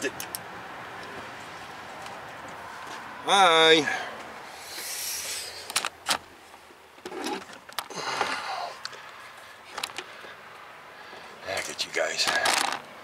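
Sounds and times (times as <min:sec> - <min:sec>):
hand tools clicking and knocking: 0:12.2 - 0:12.8.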